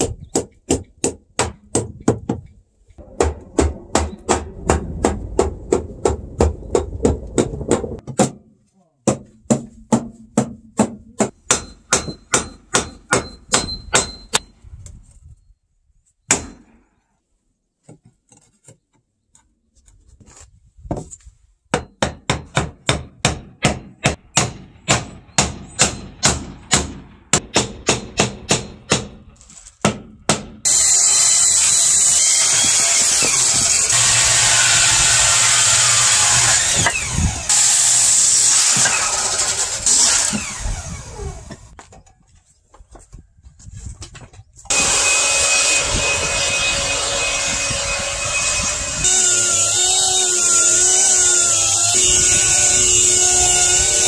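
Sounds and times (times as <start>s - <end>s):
electric power tool running: 33.5s - 41.7s, 44.7s - 52.0s.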